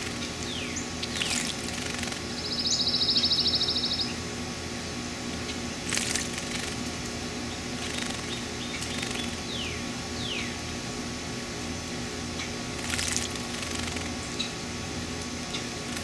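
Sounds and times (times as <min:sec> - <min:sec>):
buzzy high bird trill: 0:00.0 - 0:04.2, 0:07.5 - 0:10.6
bird splashing in water: 0:01.0 - 0:02.2, 0:05.8 - 0:06.9, 0:12.7 - 0:14.2.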